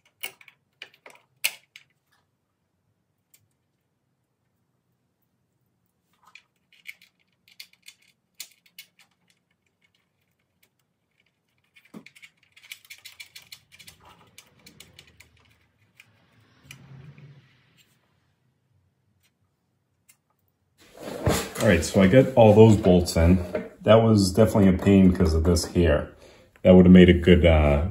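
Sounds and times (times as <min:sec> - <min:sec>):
soft scraping and rustling: 0:20.8 - 0:23.8.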